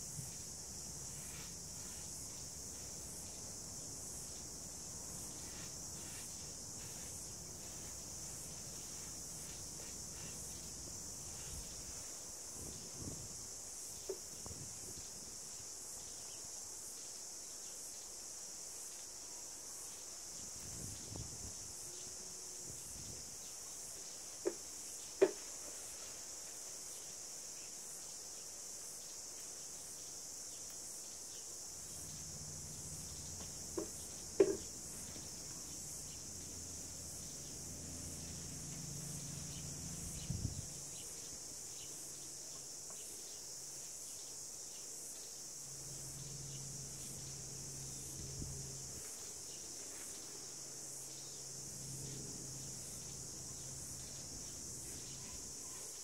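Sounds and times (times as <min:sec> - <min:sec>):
insects chirping: 0:00.0 - 0:56.0
soft knock: 0:25.2 - 0:25.4, 0:33.4 - 0:35.3.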